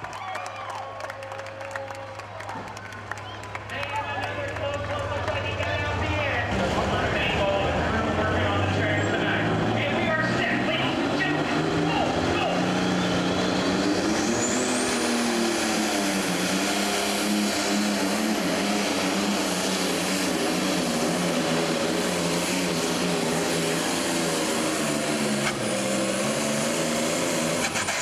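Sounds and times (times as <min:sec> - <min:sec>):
diesel engine at full power: 0:00.0 - 0:28.0
high turbo whine: 0:04.9 - 0:28.0.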